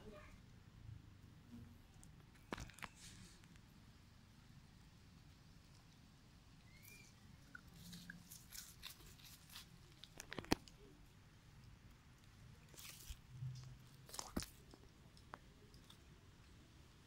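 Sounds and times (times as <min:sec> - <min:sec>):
faint chirp: 0:06.6 - 0:07.6
dry leaves crackling: 0:07.7 - 0:10.6, 0:12.6 - 0:13.2.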